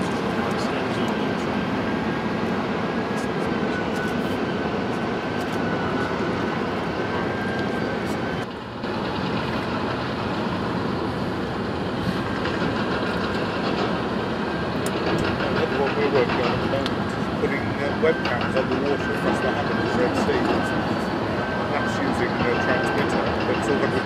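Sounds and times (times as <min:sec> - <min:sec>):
faint thin whine: 0:03.1 - 0:04.5.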